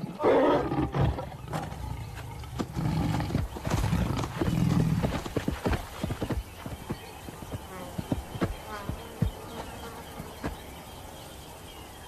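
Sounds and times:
lioness snarling: 0.0s - 5.3s
galloping hoofbeats: 1.5s - 10.6s.

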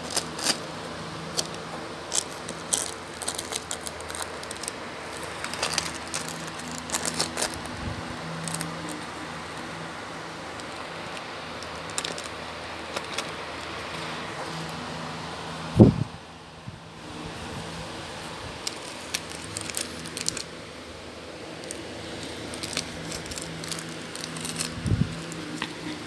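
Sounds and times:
plastic wrapper crinkling: 1.3s - 9.8s, 10.5s - 13.8s, 18.6s - 20.6s, 21.3s - 25.7s.

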